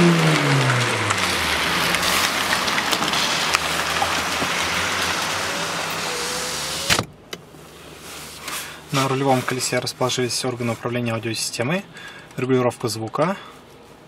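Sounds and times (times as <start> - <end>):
car engine idling: 0.0 - 7.9
dense hiss: 1.2 - 7.0.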